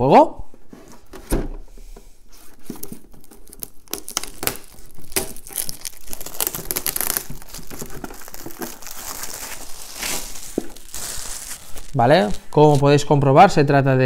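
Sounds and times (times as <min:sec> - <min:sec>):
plastic shrink-wrap crinkling: 0:02.6 - 0:13.0.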